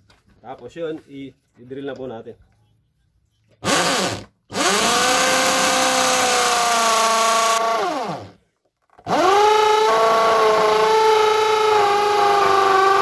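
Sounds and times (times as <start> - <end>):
electric drill whining: 3.6 - 13.0.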